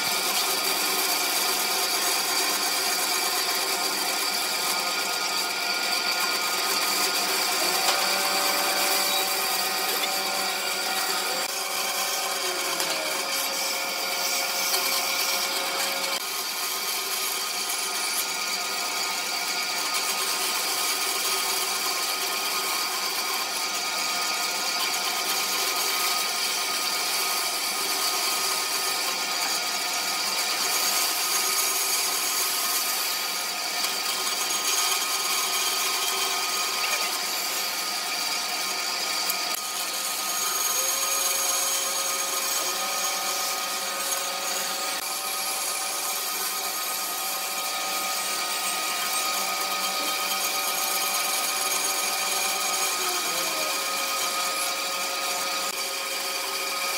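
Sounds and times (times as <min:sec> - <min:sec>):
band saw cutting wood: 0:00.0 - 0:56.9.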